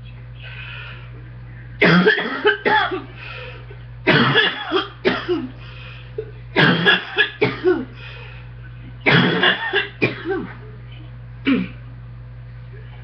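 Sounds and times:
woman coughing: 0:01.8 - 0:03.2, 0:04.0 - 0:05.6, 0:06.5 - 0:08.0, 0:09.0 - 0:10.6, 0:11.4 - 0:11.8.

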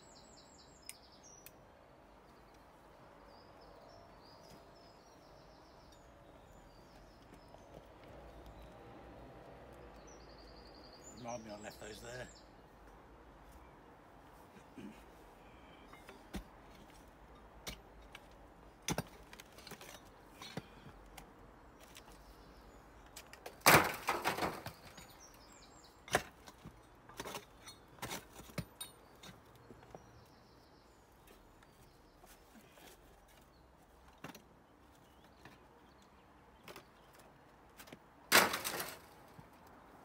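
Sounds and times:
spade digging soil and rubble: 0:15.8 - 0:22.2, 0:26.0 - 0:30.0, 0:36.6 - 0:39.5.

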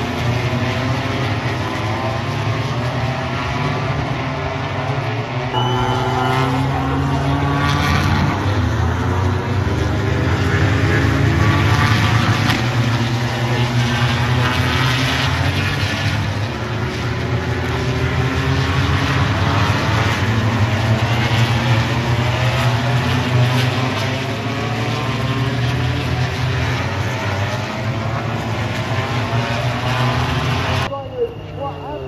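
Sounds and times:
racing motorcycles passing: 0:00.0 - 0:30.9.

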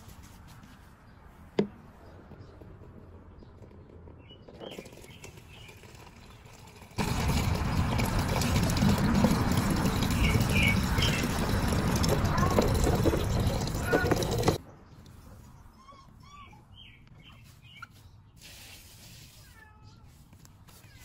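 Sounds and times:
water pouring into plastic bucket: 0:06.2 - 0:14.6.

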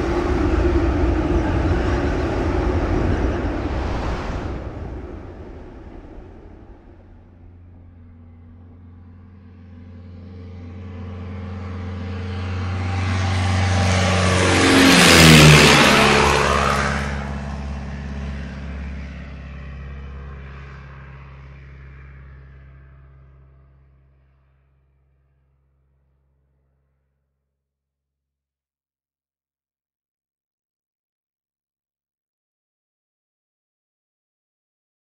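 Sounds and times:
propeller plane engine drone: 0:00.0 - 0:27.0.

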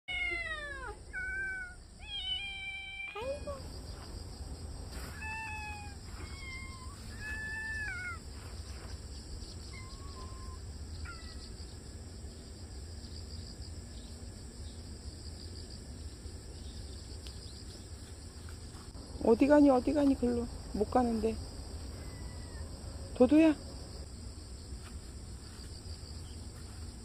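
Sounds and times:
kitten meowing: 0:00.1 - 0:03.6, 0:05.1 - 0:08.2, 0:09.7 - 0:11.4.

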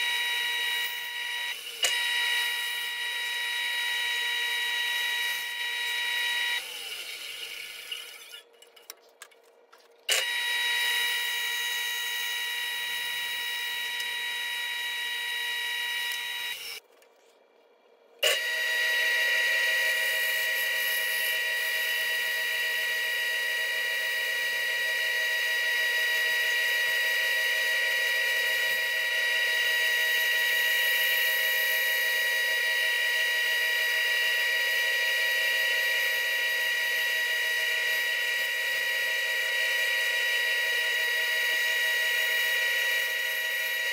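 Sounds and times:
bandsaw whining: 0:00.0 - 0:08.5, 0:18.2 - 0:43.9.

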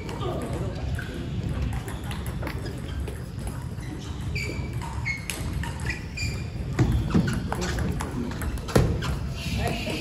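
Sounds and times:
short high squeaks: 0:03.8 - 0:07.7.

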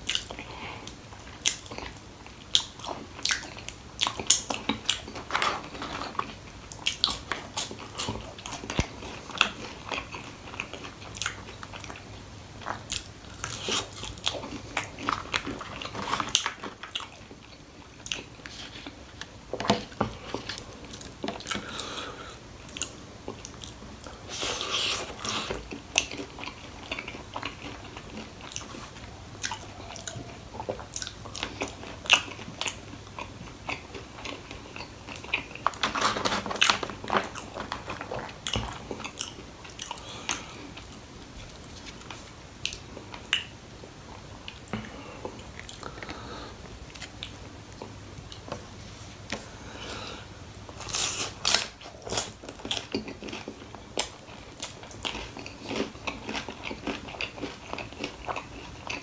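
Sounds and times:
person chewing crunchy food: 0:00.0 - 0:48.6, 0:49.3 - 0:59.0.

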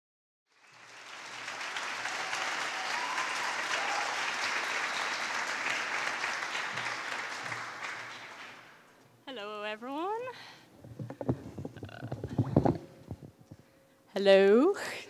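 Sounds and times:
audience applauding: 0:00.5 - 0:09.0.

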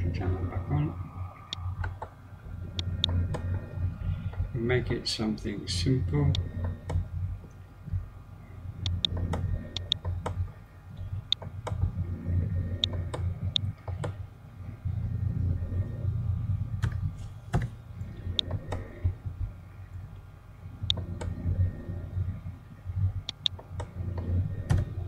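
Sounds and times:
low steady hum: 0:00.0 - 0:25.0
computer mouse clicks: 0:01.4 - 0:02.1, 0:02.7 - 0:03.7, 0:08.8 - 0:10.4, 0:12.8 - 0:14.2, 0:18.3 - 0:19.0, 0:20.9 - 0:21.4, 0:23.2 - 0:25.0.

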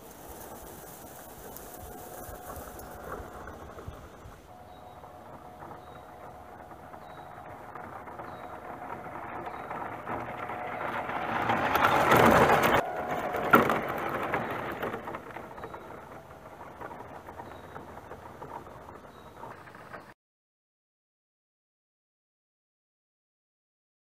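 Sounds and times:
tyres crunching dirt and leaves: 0:00.0 - 0:20.1
toy truck motor whine: 0:00.2 - 0:17.8.

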